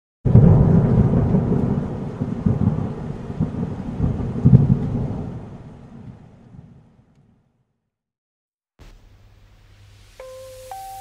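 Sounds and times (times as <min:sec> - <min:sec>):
rain falling: 0:00.3 - 0:06.7, 0:08.8 - 0:11.0
thunder rumbling: 0:00.3 - 0:06.9.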